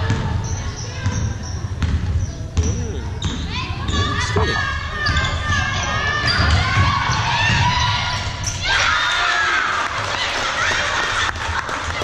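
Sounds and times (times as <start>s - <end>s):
basketball bouncing: 0.0s - 0.3s, 1.0s - 7.8s
shoe squeaks: 0.4s - 7.2s.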